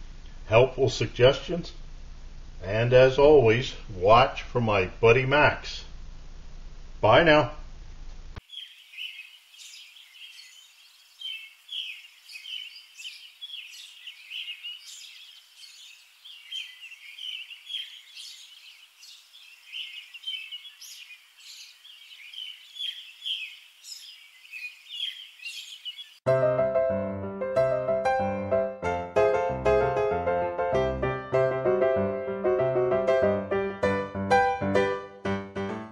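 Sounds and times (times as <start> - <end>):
small birds chirping: 8.4 - 26.2
piano music: 26.3 - 35.9.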